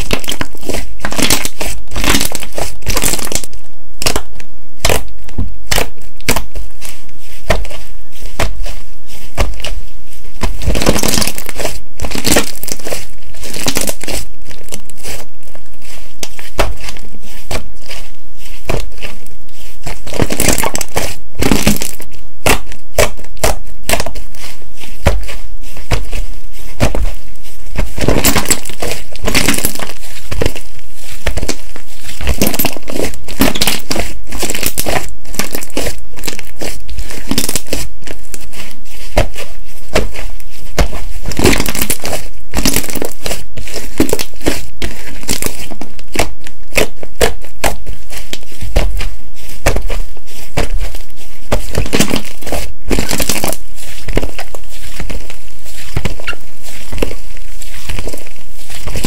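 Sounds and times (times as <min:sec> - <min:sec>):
slime crackling and popping: 0:00.0 - 0:59.0
slime crunching: 0:00.0 - 0:59.0.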